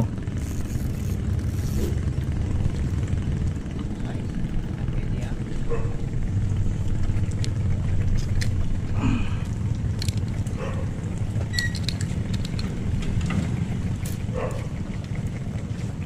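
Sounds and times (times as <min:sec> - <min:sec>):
low engine rumble: 0:00.0 - 0:16.0
tackle and pliers clicking: 0:10.0 - 0:10.4, 0:11.6 - 0:12.7.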